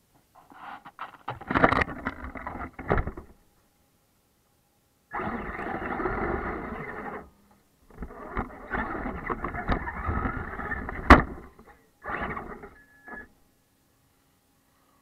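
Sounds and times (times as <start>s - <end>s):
toy truck driving through snow: 5.1s - 7.3s, 7.9s - 13.3s.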